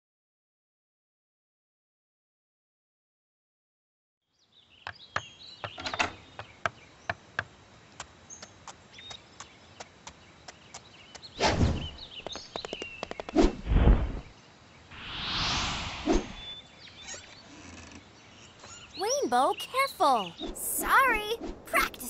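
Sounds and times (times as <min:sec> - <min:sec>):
birdsong: 0:04.3 - 0:13.4, 0:16.2 - 0:21.4
cartoon whoosh: 0:15.0 - 0:16.5
heavy low rush: 0:15.0 - 0:16.5.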